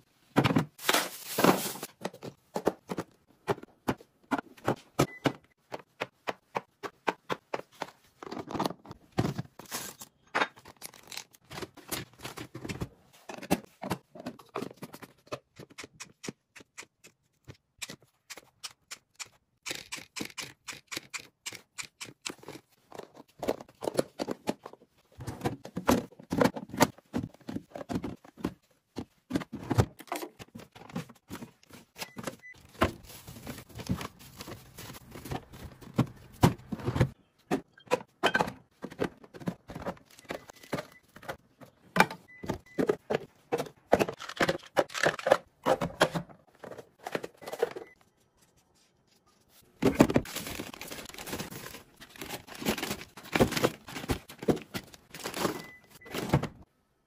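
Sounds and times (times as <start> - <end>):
plastic containers clicking and knocking: 21.6 - 32.9, 33.8 - 47.9, 49.8 - 56.6.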